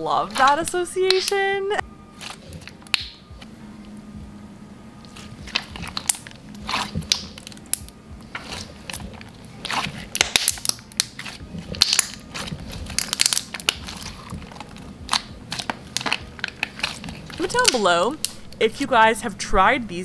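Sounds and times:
slime crackling and popping: 0.3 - 1.5, 2.2 - 3.3, 5.0 - 18.5.

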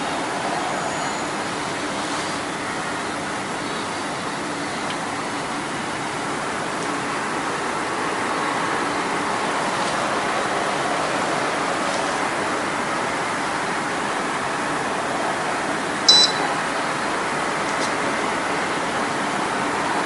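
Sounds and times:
rushing background noise: 0.0 - 20.0
high electronic beep: 16.1 - 16.6.

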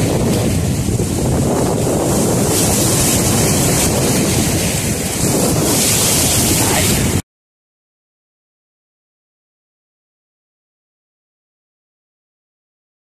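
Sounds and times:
waves breaking against rocks: 0.0 - 7.2
wind on microphone: 0.0 - 7.2.

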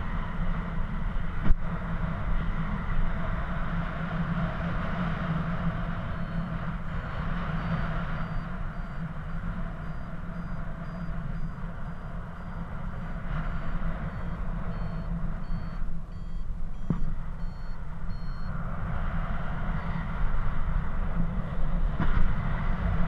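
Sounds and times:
wind rush on microphone: 0.0 - 23.0
variometer high beeps: 5.6 - 18.6.

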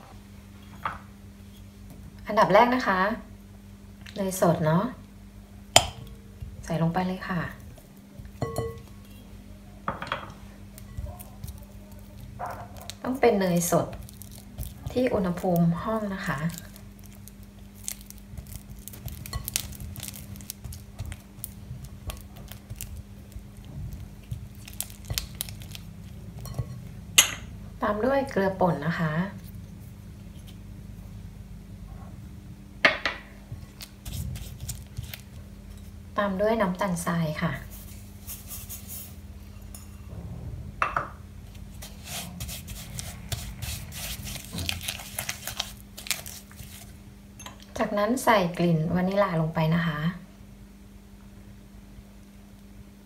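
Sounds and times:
spatula scraping glass bowl: 41.8 - 45.7.

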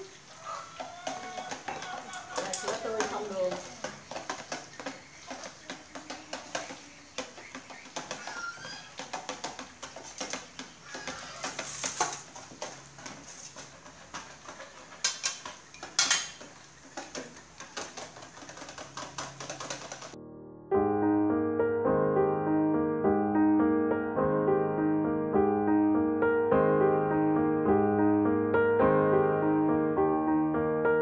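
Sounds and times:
oil crackling and popping: 0.0 - 20.2
metal ladle clinking steel bowls: 15.0 - 17.4
piano music: 20.1 - 31.0.

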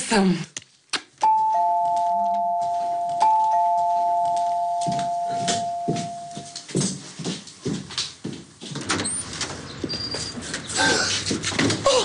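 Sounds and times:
two-note doorbell chime: 1.2 - 6.6.

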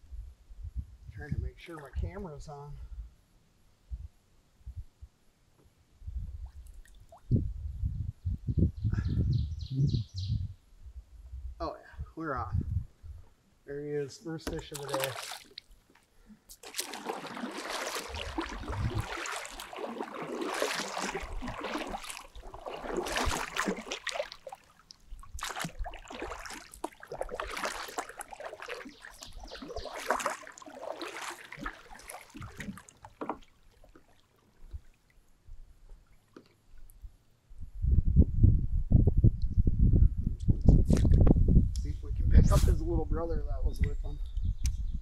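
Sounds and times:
water splashing around a kayak: 14.4 - 36.9.

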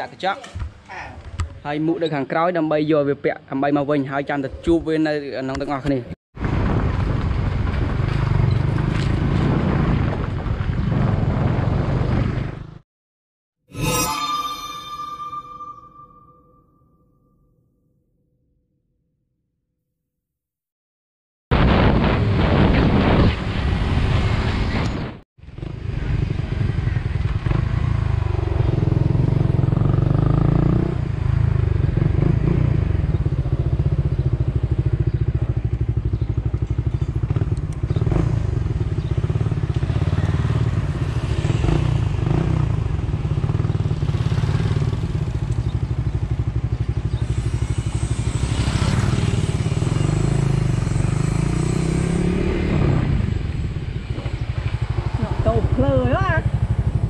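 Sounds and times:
wind rushing over microphone: 6.4 - 12.7
motorcycle engine running: 25.5 - 57.0.

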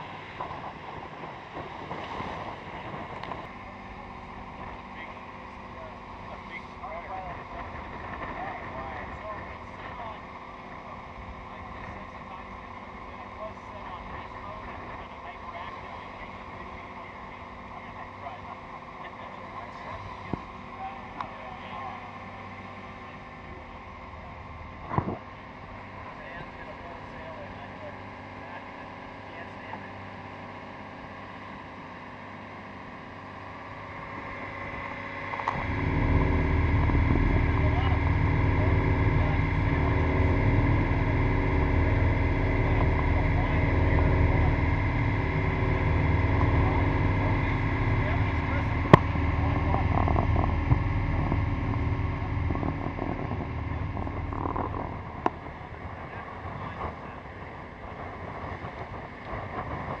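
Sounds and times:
wind buffeting microphone: 0.0 - 3.6, 33.8 - 60.0
water and wind rushing: 0.0 - 6.2
boat engine hum: 0.0 - 60.0
water splashing along hull: 0.0 - 60.0.

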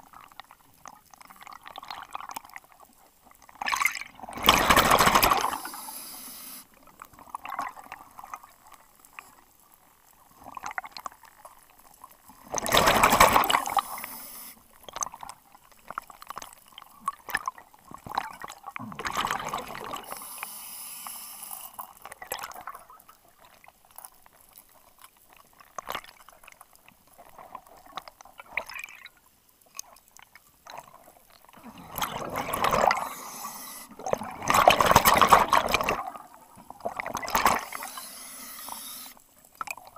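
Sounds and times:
rush of exhaled bubbles: 3.6 - 6.0, 12.5 - 14.1, 18.0 - 20.2, 31.6 - 38.0
high hiss: 5.5 - 6.7, 13.6 - 14.6, 20.1 - 21.8
small clicks and rustling: 14.7 - 18.8, 21.6 - 31.6.

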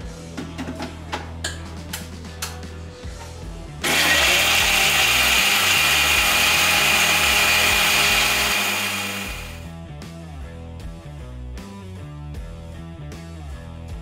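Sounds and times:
mixer grinder motor blending: 3.8 - 9.6.

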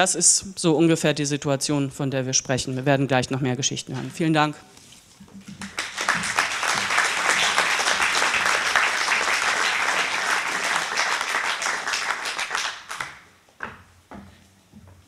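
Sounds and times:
audience applauding: 5.6 - 13.3.

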